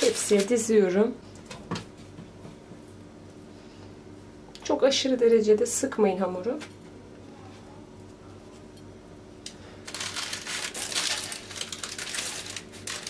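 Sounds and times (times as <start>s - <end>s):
baking paper crinkling: 0.0s - 0.8s, 9.6s - 13.0s
faint room hum: 0.0s - 13.0s.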